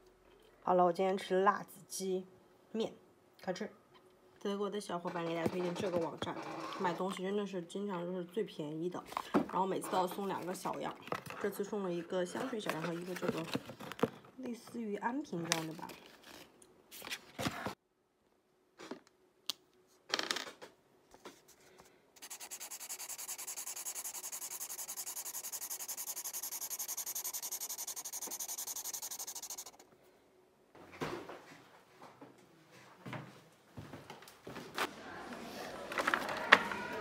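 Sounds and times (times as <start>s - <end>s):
fast even rubbing: 22.2s - 29.8s.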